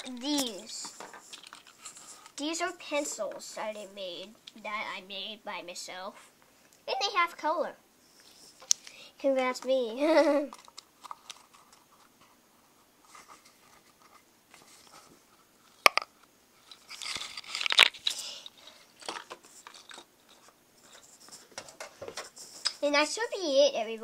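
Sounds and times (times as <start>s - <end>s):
rustling and scraping on desk: 0.2s - 3.4s, 8.0s - 8.7s, 10.5s - 15.9s, 16.6s - 22.8s.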